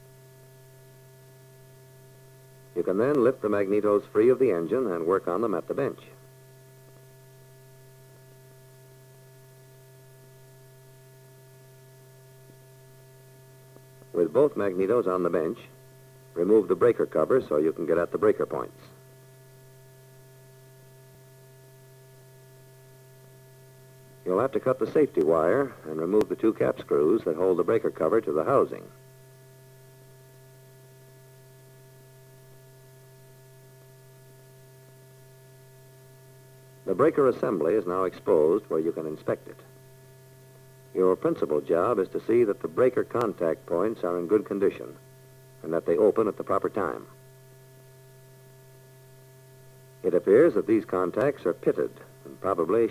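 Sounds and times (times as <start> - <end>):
electrical hum: 0.0 - 52.9.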